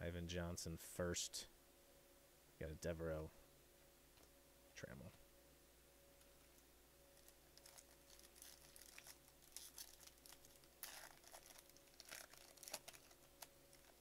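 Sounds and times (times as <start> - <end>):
shiny wrapper crinkling and tearing: 7.2 - 14.0.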